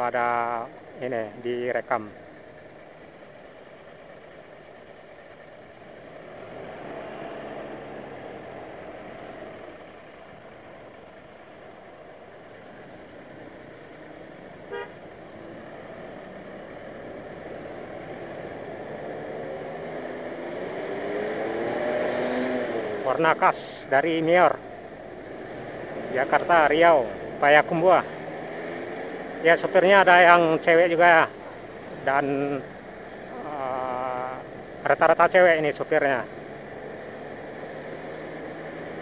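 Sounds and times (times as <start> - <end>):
road traffic noise: 0.0 - 39.0
engine revving: 5.8 - 11.0, 12.4 - 39.0
short horn beep: 14.7 - 15.0.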